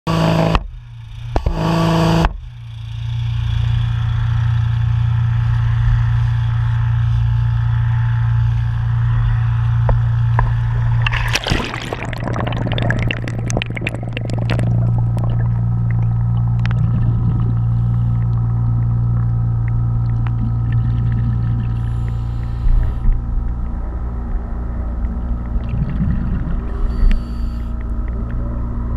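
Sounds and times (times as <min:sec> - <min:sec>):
small engine humming: 0:00.1 - 0:11.1, 0:14.9 - 0:28.9
underwater splashing and bubbling: 0:10.0 - 0:28.9.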